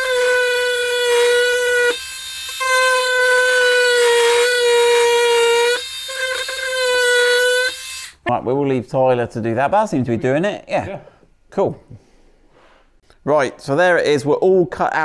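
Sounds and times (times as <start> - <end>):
oscillating multi-tool whine: 0.0 - 8.2.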